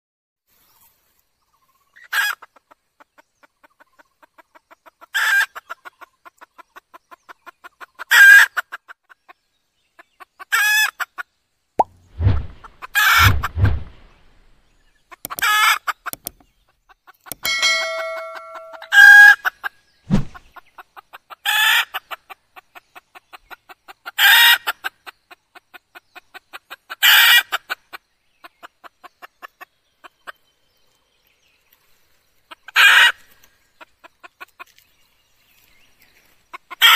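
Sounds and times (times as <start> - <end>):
low thumps: 11.8 - 14.4, 20.1 - 20.4.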